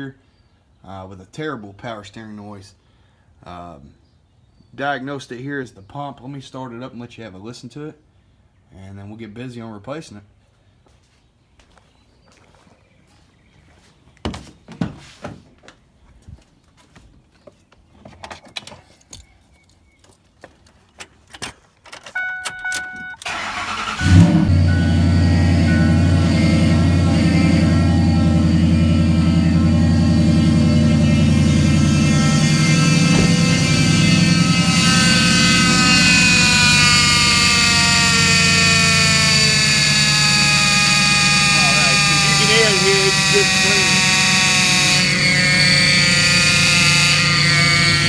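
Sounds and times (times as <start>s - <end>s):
dashboard warning chime: 22.1s - 35.9s
power steering pump whine: 22.1s - 48.0s
starter cranking engine: 23.2s - 48.0s.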